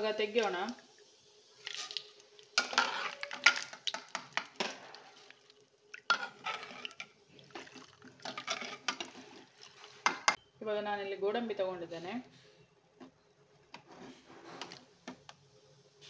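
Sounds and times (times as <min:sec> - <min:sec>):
ladle scraping metal pan: 0:02.6 - 0:03.8, 0:06.1 - 0:10.2.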